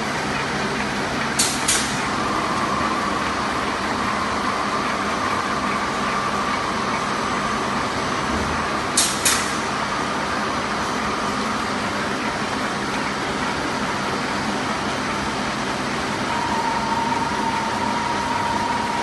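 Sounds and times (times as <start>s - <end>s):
machine humming and whining: 0.0s - 19.0s
sharp hissing clicks: 1.4s - 2.1s, 9.0s - 9.6s.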